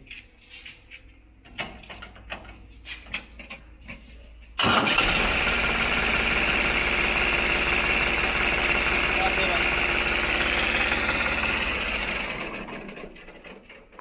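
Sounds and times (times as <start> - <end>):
tractor diesel engine starting: 4.6 - 14.0.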